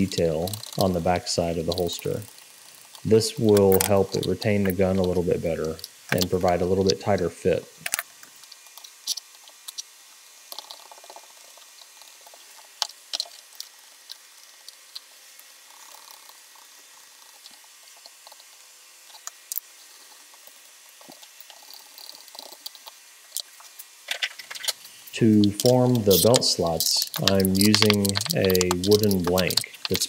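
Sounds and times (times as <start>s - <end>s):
light clicks and taps: 25.4s - 30.0s.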